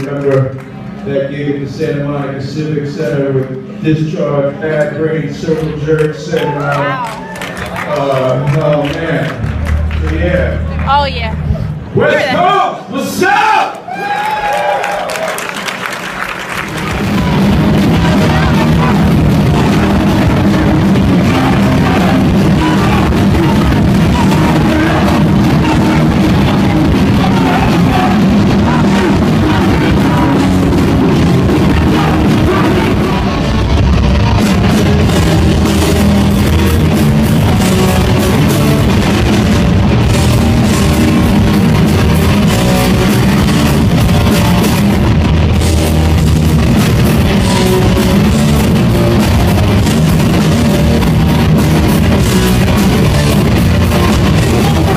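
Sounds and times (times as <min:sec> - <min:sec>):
bass guitar: 0:06.8 - 0:12.4, 0:16.6 - 0:54.9
distorted electric guitars: 0:16.6 - 0:54.9
drum kit: 0:16.7 - 0:54.9.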